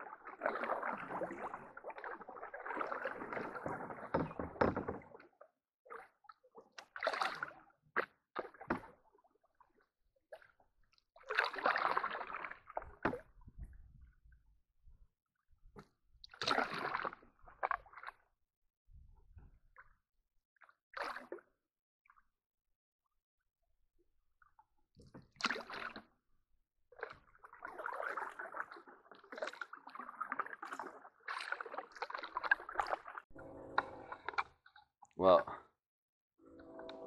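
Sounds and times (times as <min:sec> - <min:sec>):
canoe paddles splashing: 0:00.2 - 0:05.3, 0:11.3 - 0:13.2, 0:16.4 - 0:18.1, 0:27.0 - 0:34.4.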